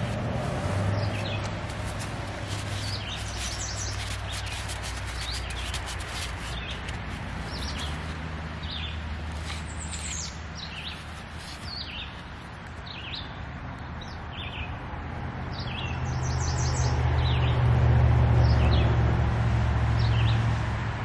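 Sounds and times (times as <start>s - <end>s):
small birds chirping: 0.9s - 14.8s.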